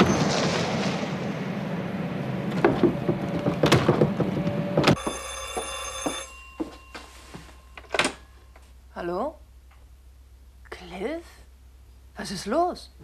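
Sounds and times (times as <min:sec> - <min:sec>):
low rumble with clanks: 0:00.0 - 0:05.0
telephone bell ringing: 0:04.9 - 0:08.6.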